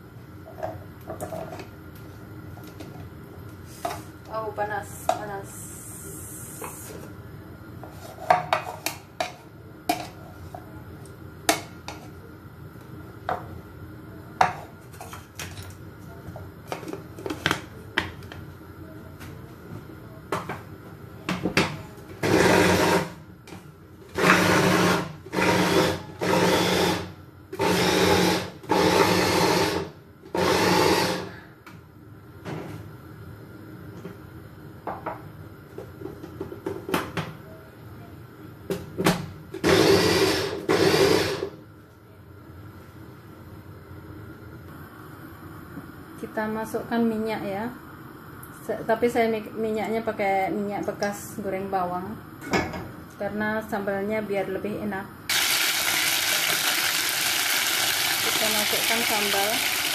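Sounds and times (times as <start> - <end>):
electric blender grinding: 22.2 - 23.2, 24.2 - 31.3, 39.6 - 41.5, 55.3 - 59.9.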